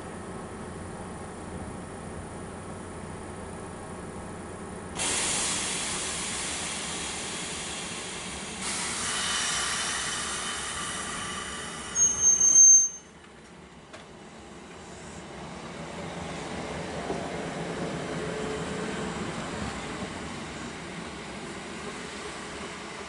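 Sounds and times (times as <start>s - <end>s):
high-pitched train whistle: 11.9s - 13.2s.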